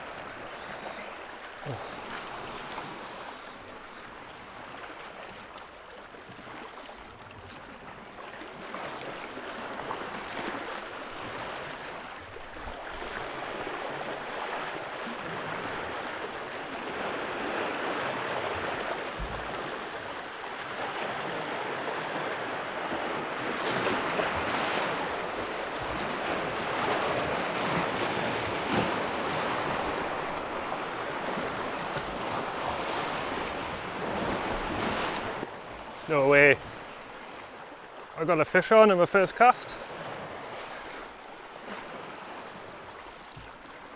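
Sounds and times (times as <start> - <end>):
sea waves breaking over rocks: 0.0 - 43.9.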